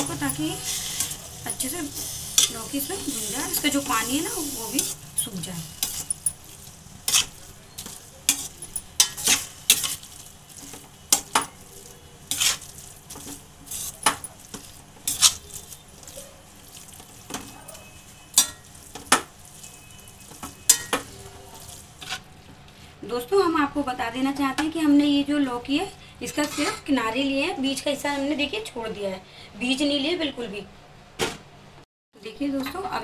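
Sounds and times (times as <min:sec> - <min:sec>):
metal spatula scraping a pan: 0:00.0 - 0:11.5, 0:12.2 - 0:16.0, 0:17.0 - 0:22.3, 0:26.4 - 0:26.8
faint sizzle of frying: 0:00.0 - 0:30.6.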